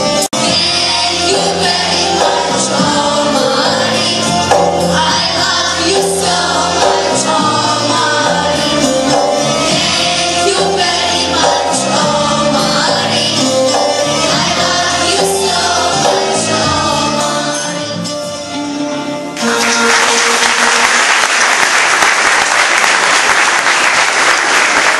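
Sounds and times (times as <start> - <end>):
youth choir singing: 0.0 - 18.4
keyboard: 0.0 - 21.0
audience applause: 19.4 - 24.9.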